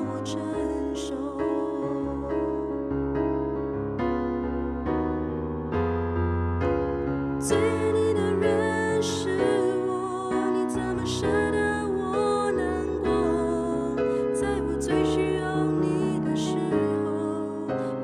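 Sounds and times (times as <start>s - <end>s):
woman singing with vibrato: 0.0s - 2.6s, 7.4s - 18.0s
slow piano ballad: 0.0s - 18.0s.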